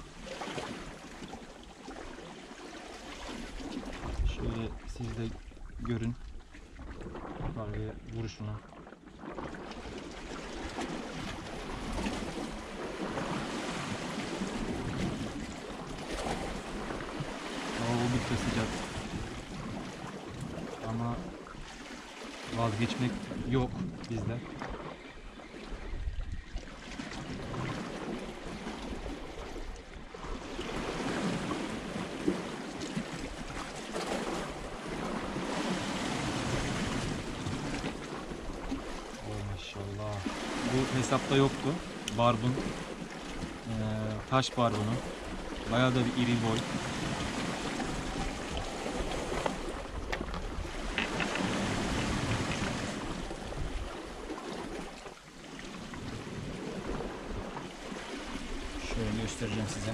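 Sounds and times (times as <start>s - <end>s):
wind buffeting microphone: 3.7s - 6.2s, 10.5s - 20.8s, 23.2s - 39.2s, 46.6s - 54.8s
sea washing against rocks: 9.5s - 25.1s, 27.0s - 59.9s.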